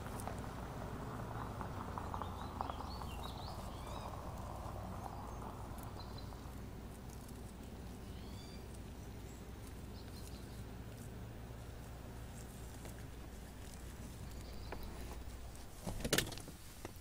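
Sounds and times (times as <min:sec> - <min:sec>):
low rumble: 0:00.0 - 0:15.8
faint rustling: 0:00.0 - 0:17.0
bird chirps: 0:01.9 - 0:06.6, 0:07.9 - 0:10.7, 0:14.2 - 0:15.2.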